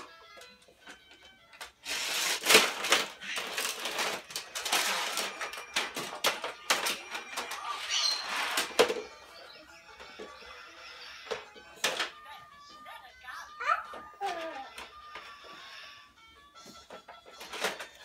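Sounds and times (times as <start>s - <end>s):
toy cars rattling on plastic track: 1.7s - 9.1s, 17.2s - 18.0s.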